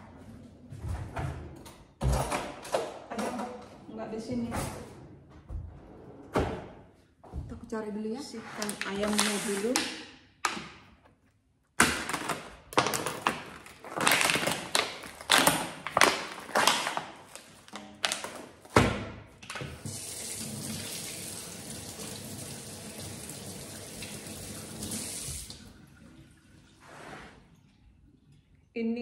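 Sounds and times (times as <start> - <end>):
plastic film crinkling and tearing: 11.8 - 18.7.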